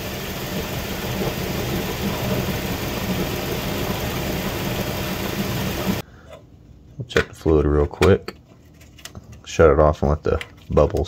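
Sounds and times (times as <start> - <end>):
engine idling: 0.0 - 6.0.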